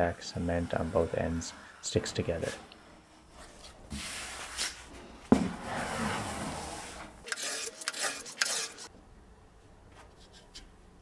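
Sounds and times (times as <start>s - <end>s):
board scraping across veneer: 5.4s - 8.9s.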